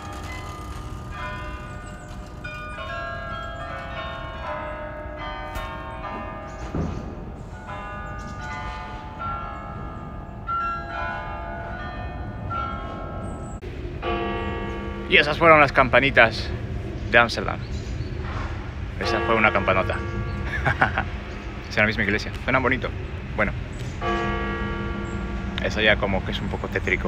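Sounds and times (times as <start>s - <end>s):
carillon bells ringing a melody: 0.0s - 16.5s, 19.0s - 22.2s.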